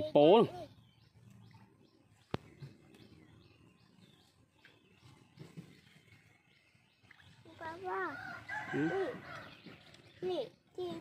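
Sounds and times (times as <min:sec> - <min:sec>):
small birds chirping: 0:00.0 - 0:11.0.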